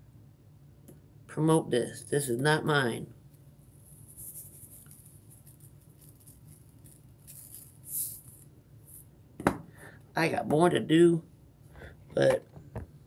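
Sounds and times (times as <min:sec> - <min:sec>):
faint handling rustling: 0:03.3 - 0:09.1.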